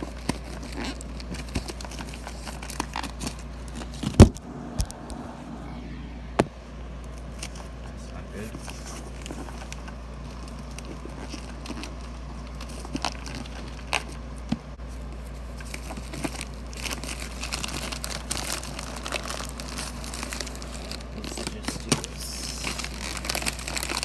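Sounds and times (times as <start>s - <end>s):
plastic bag crinkling: 0.0s - 4.3s, 8.6s - 14.4s, 15.1s - 24.0s.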